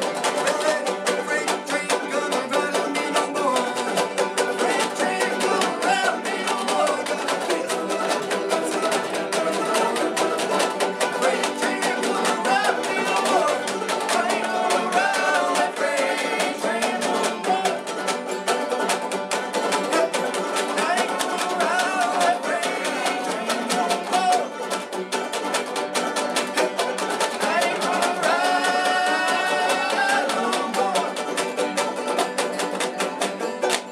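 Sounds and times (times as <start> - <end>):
man singing: 0.0 - 17.9, 19.8 - 24.6, 27.3 - 31.4
banjos picking a fast tune: 0.0 - 33.9.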